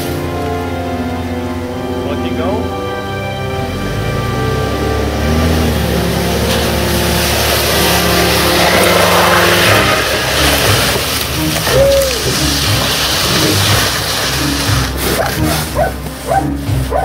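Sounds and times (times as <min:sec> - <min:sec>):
car engine pulling: 0:00.0 - 0:17.0
plow board scraping snow: 0:00.0 - 0:17.0.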